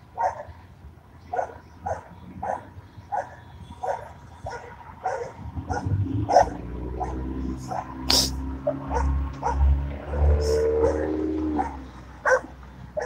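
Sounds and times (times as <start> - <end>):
dog barking: 0.2 - 0.5, 1.3 - 13.0.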